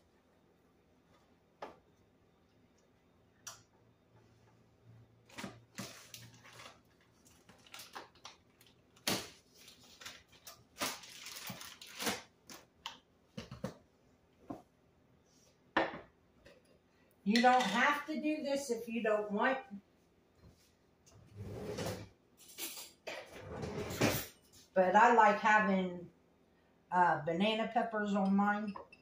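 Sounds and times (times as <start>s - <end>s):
plastic package crinkling: 5.8s - 12.7s.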